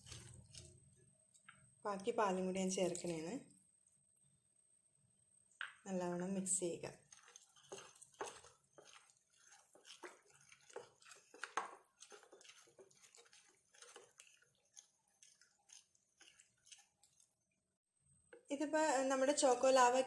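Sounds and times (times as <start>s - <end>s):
spoon stirring thick batter: 0.0s - 4.4s, 6.0s - 20.0s.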